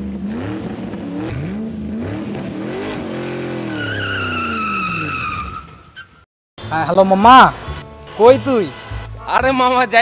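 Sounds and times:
car engine revving: 0.0 - 5.2
tire squeal: 3.3 - 6.2.

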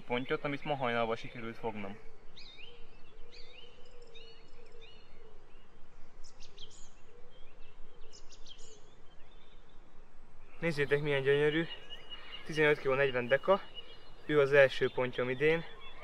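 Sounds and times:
birds singing: 0.0 - 16.0
outdoor background noise: 0.0 - 16.0.

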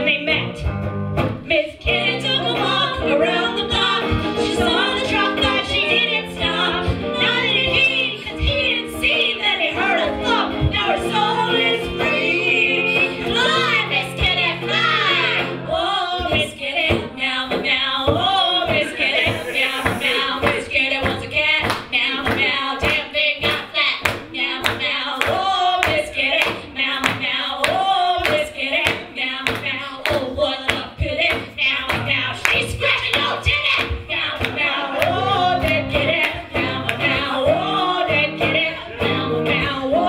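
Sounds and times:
women singing: 0.0 - 0.6, 1.4 - 40.0
electric guitar: 0.0 - 40.0
hand claps: 18.7 - 37.3.

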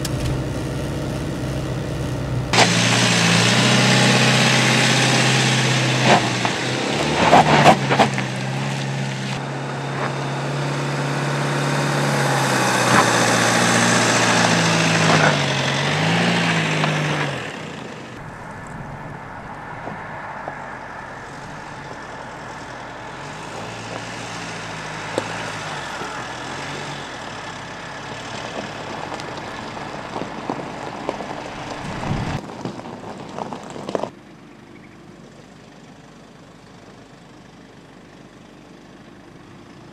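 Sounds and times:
car engine under load: 0.0 - 39.9
tyres hissing on gravel: 2.5 - 10.7, 11.7 - 17.4, 21.0 - 34.1
stones clicking against tyres: 6.0 - 9.4, 21.2 - 34.2.

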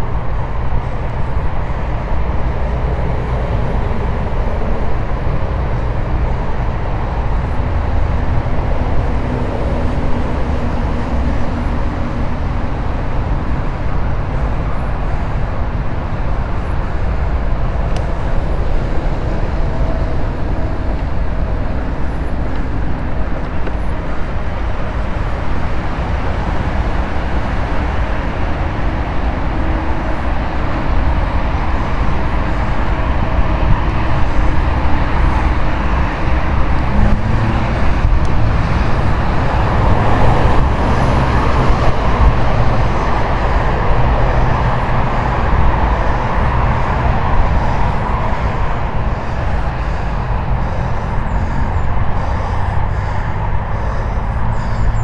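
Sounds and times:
wind rumble on microphone: 0.0 - 55.0.

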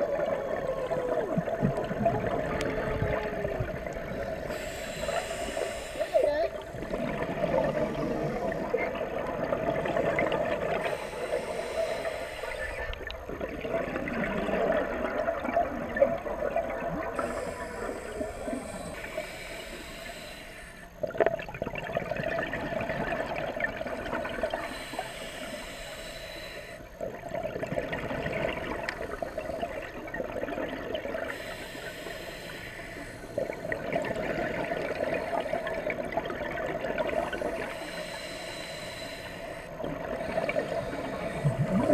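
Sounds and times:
diver breathing through regulator: 4.0 - 6.2, 9.8 - 13.0, 17.2 - 21.0, 24.2 - 27.0, 31.2 - 34.0, 36.9 - 41.9.

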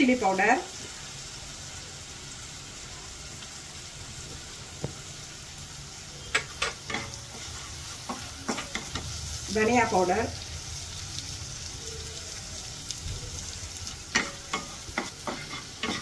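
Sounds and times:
masala sizzling in oil: 0.0 - 16.0
spatula scraping and tapping pan: 6.3 - 9.2, 14.1 - 16.0.

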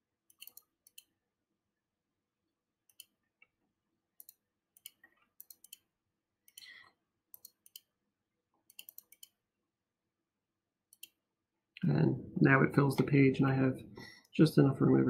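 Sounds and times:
mouse buttons clicking: 0.3 - 1.1, 2.9 - 3.2, 4.2 - 5.9, 7.4 - 7.9, 8.7 - 9.4.

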